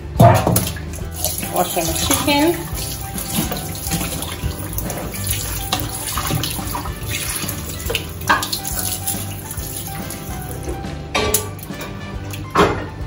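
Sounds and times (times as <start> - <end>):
water splashing: 0.2 - 10.9
tap water running into bowl: 0.2 - 11.8.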